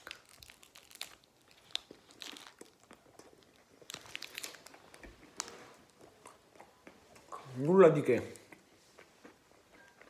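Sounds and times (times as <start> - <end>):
plastic wrapper crinkling: 0.0 - 6.1.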